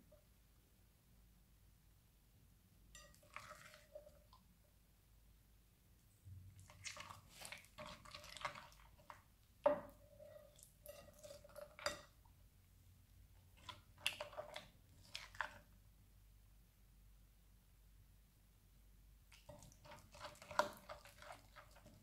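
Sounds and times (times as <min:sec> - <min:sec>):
slime squelching: 0:06.5 - 0:09.3, 0:13.5 - 0:15.7, 0:19.3 - 0:22.0.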